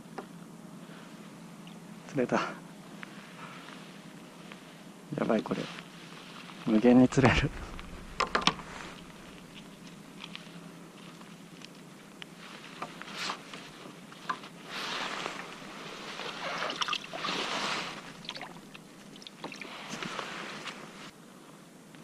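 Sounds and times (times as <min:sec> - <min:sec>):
water trickling and sloshing: 0:07.1 - 0:10.3, 0:14.8 - 0:20.5.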